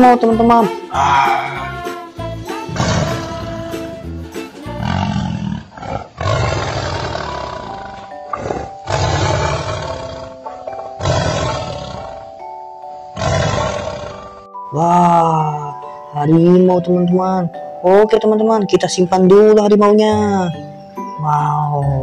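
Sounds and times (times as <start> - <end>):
light background music: 0.0 - 5.4, 7.1 - 22.0
tiger growling and snarling: 2.7 - 3.4, 4.8 - 12.3, 13.1 - 14.4.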